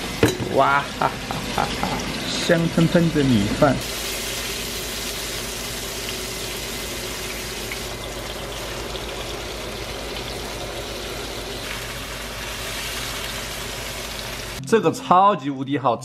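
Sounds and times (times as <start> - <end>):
meat sizzling in hot oil: 0.0 - 14.6.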